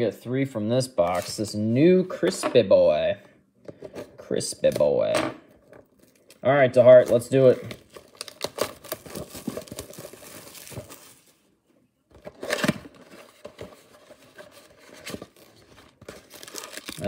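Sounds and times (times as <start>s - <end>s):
plastic wrap tearing and crinkling: 5.8s - 11.4s, 14.6s - 17.0s.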